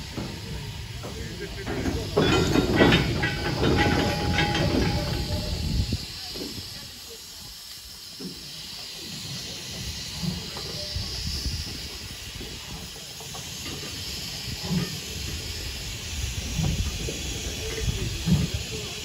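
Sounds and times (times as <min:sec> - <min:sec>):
steam hissing: 0:00.0 - 0:19.0.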